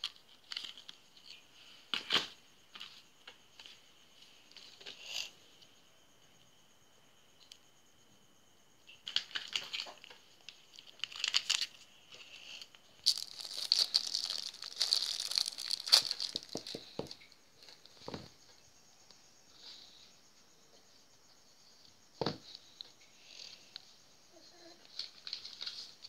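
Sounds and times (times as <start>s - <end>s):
plastic packet crinkling: 10.7s - 11.8s, 13.0s - 17.1s.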